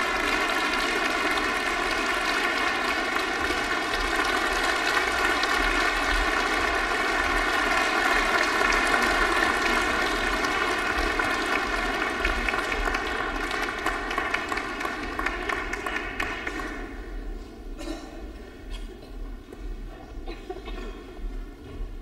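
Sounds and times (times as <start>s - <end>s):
audience applauding: 0.0s - 17.1s.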